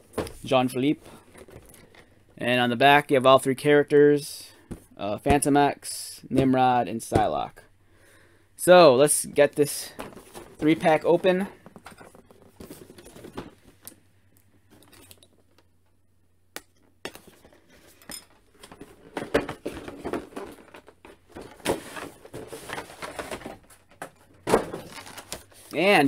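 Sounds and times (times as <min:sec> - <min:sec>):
packaging rustling: 0:17.1 - 0:25.8.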